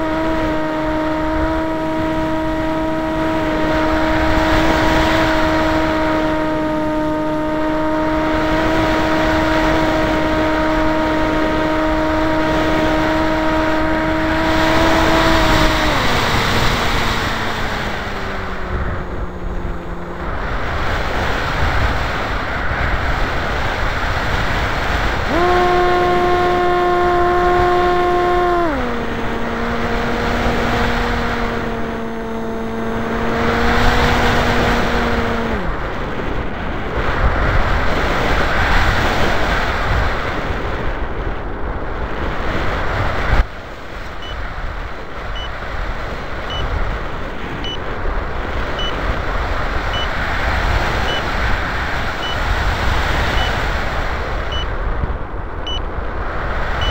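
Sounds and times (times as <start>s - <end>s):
motor tone: 0.0s - 21.3s, 25.2s - 35.8s, 48.8s - 49.0s, 53.2s - 53.7s
wind rushing over microphone: 0.0s - 56.9s
faint short beeps: 44.2s - 44.4s, 46.5s - 46.7s, 48.8s - 49.0s, 49.9s - 50.1s, 51.0s - 51.3s, 52.2s - 52.4s, 53.3s - 53.6s, 54.5s - 54.7s.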